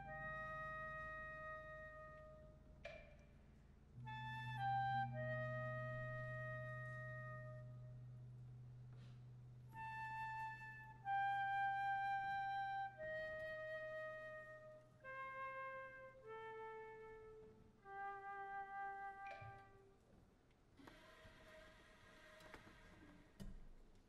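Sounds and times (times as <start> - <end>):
solo flute melody: 0.0 - 2.7, 4.0 - 8.3, 9.7 - 20.0.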